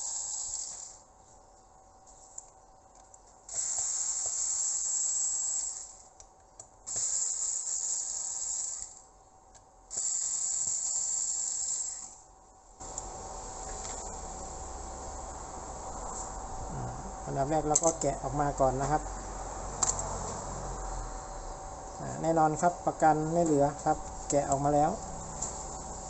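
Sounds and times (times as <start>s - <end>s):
steady hiss: 12.8s - 26.0s.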